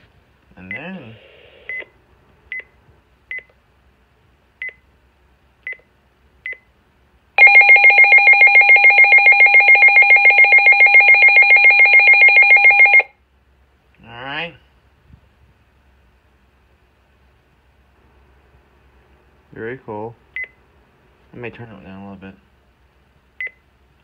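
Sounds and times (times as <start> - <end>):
warbling alert siren: 7.4 - 13.1.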